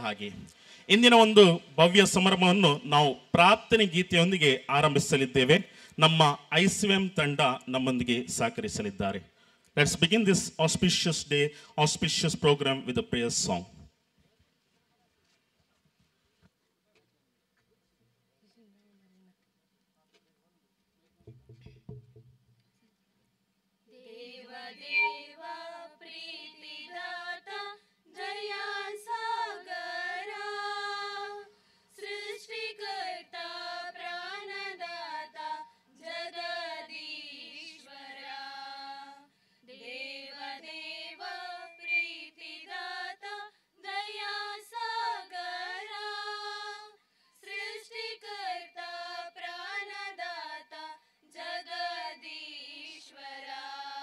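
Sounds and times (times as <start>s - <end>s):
women singing together unaccompanied: 23.9s - 54.0s.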